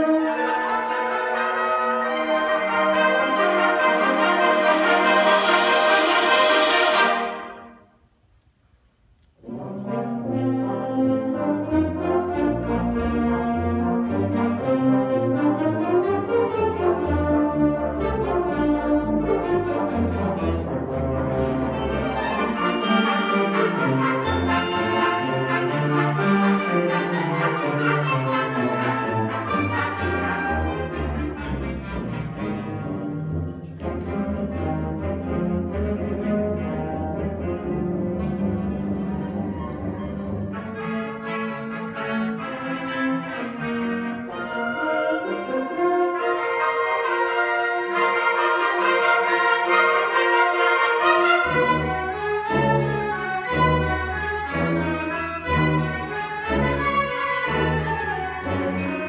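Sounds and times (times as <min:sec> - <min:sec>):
held brass chord: 0:00.0 - 0:07.8, 0:09.4 - 0:35.1
wind band playing: 0:00.0 - 0:08.0, 0:09.4 - 0:59.0.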